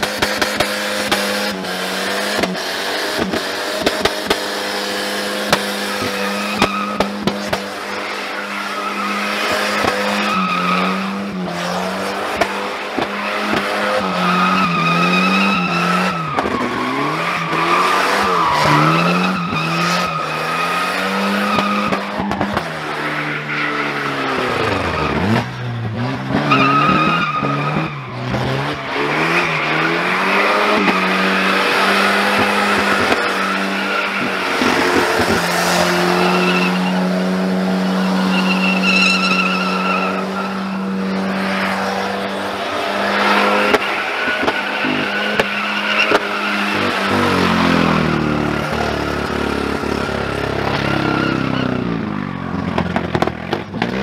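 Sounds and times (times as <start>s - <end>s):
car engine revving: 0.0s - 54.0s
tyres squealing: 26.4s - 41.7s, 42.5s - 48.1s.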